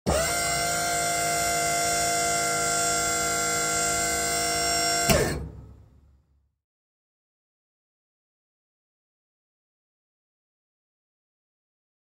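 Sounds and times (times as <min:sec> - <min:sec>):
servo motor whine: 0:00.1 - 0:05.7.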